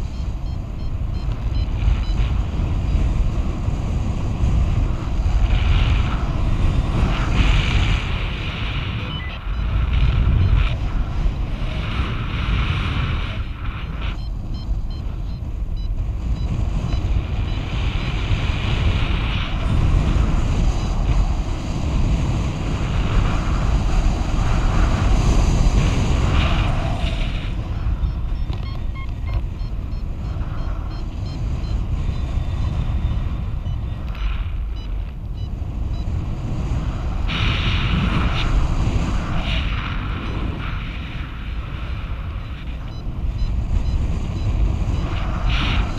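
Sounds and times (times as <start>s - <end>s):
wind rushing over microphone: 0.0s - 45.9s.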